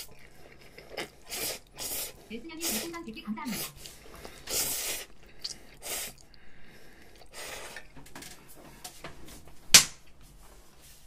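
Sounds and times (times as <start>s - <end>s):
person slurping noodles: 0.0s - 8.0s.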